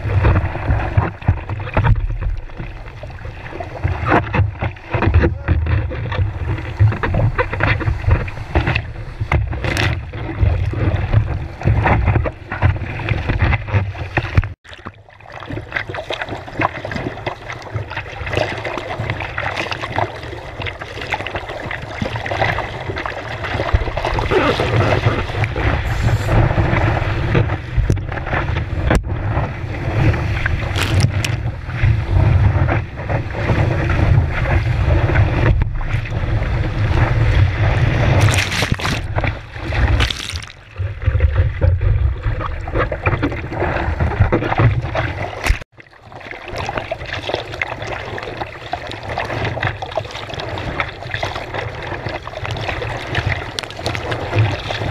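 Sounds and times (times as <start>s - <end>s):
water rushing and splashing: 0.0s - 54.9s
wind buffeting microphone: 23.6s - 45.5s.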